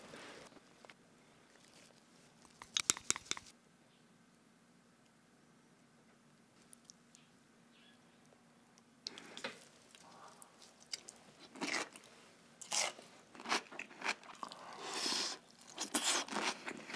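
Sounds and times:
crunchy chewing of cucumber: 9.1s - 16.9s.

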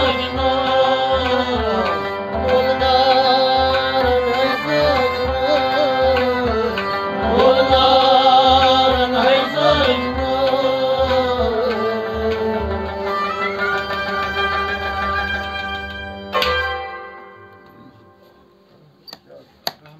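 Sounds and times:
man singing: 0.0s - 14.6s
harmonium: 0.0s - 18.8s.

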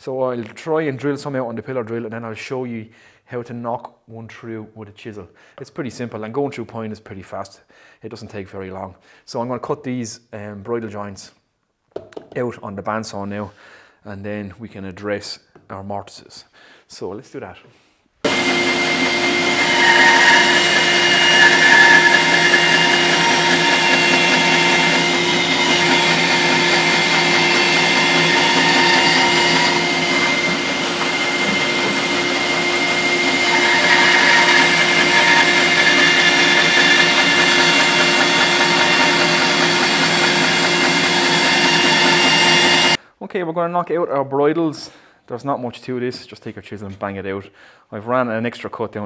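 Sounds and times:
bandsaw cutting wood: 18.2s - 43.0s.

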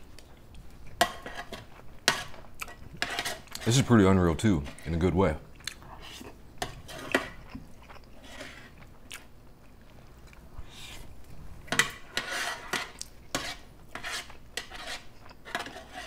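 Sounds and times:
spoon scraping a tray: 1.0s - 2.4s, 3.0s - 4.0s, 6.0s - 7.4s, 8.1s - 8.8s, 11.7s - 16.0s
chewing food: 5.5s - 11.4s, 12.9s - 13.3s.

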